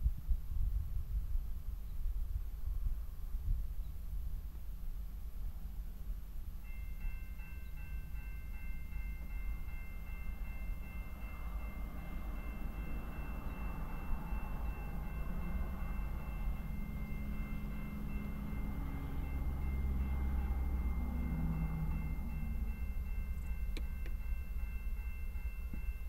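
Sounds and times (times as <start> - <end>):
train rumble: 0.0 - 26.0
crossing warning bell ringing: 6.5 - 26.0.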